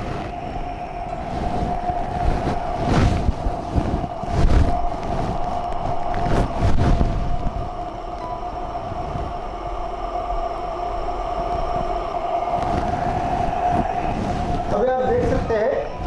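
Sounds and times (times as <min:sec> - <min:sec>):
oxygen hissing with steady tone: 0:00.0 - 0:16.0.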